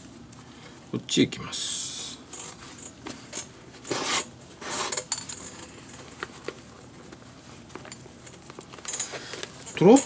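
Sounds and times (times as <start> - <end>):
glove handling ticks and rustles: 5.6 - 10.0.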